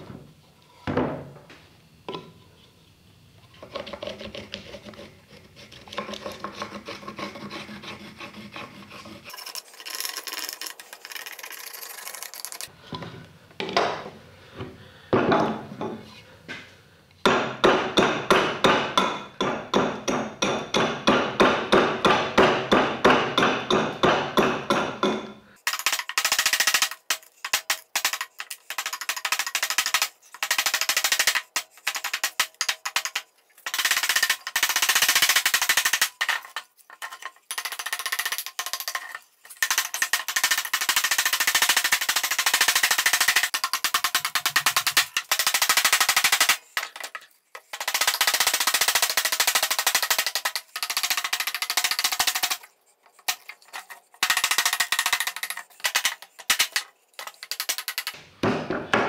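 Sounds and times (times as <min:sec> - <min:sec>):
rubbing and scratching on wood: 0:03.6 - 0:12.6.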